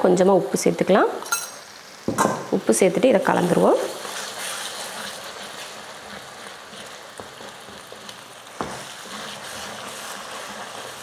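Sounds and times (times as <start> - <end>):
eggs sizzling in hot oil: 0.0 - 11.0
spatula stirring in pan: 3.2 - 11.0.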